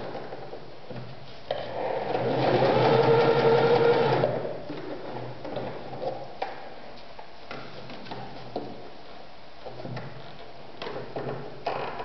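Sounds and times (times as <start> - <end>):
sewing machine running: 2.1 - 4.4.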